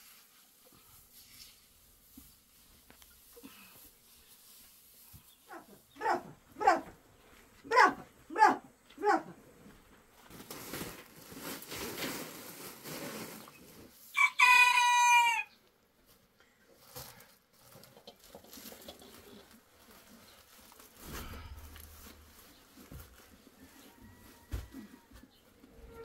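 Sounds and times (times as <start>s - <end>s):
rooster crowing: 14.2s - 15.5s.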